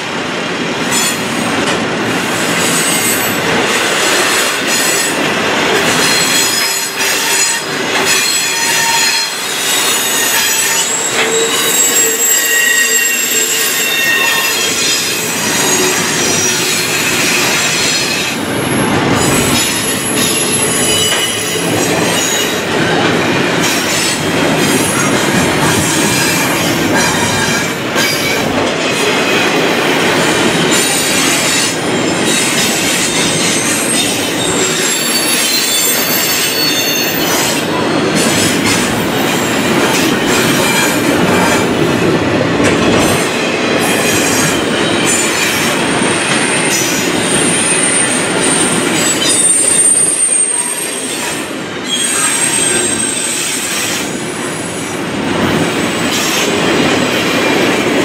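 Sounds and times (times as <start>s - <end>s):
train wheels rumbling on rails: 0.0s - 58.0s
high wheel squeal: 6.0s - 18.2s, 19.2s - 22.6s, 30.8s - 38.2s, 46.5s - 54.0s.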